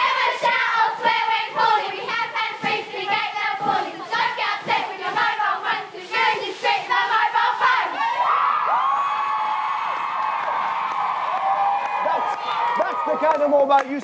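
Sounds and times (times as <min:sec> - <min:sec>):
girls chanting a cheer in unison: 0:00.0 - 0:08.8.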